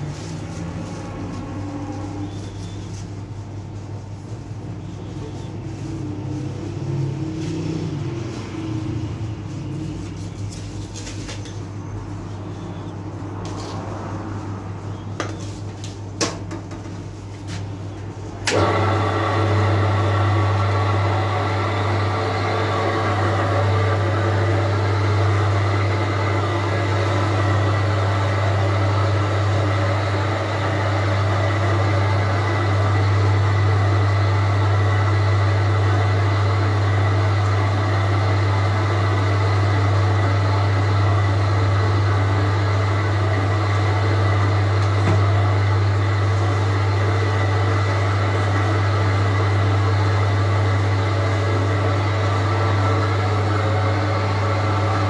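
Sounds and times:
dough kneading machine humming: 0:00.0 - 0:55.0.

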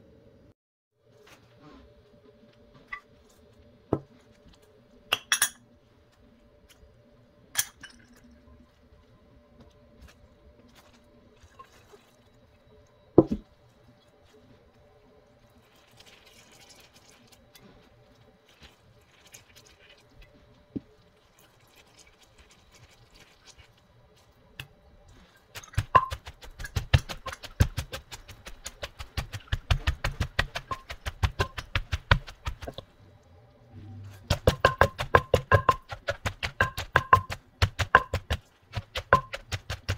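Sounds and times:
pestle knocking in mortar: 0:25.6 - 0:32.8, 0:34.3 - 0:39.9.

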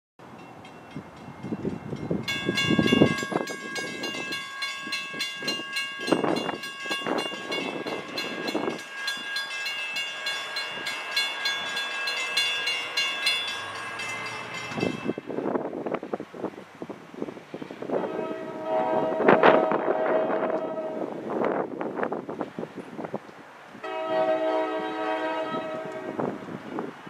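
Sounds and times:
railroad crossing bells ringing: 0:00.2 - 0:15.9.

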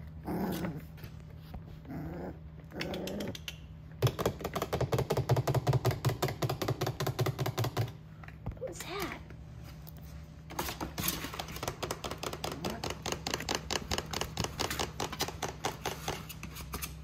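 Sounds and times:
puppy pulsing growl: 0:00.0 - 0:03.6
puppy whines: 0:01.8 - 0:03.6.

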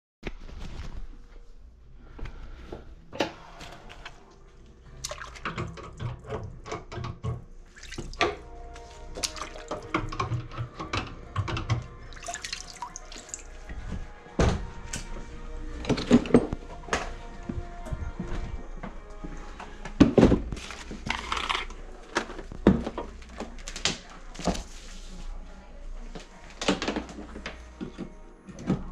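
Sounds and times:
background music: 0:01.6 - 0:28.9
water splashing in a sink: 0:04.8 - 0:08.4, 0:09.0 - 0:10.6, 0:11.4 - 0:13.7.

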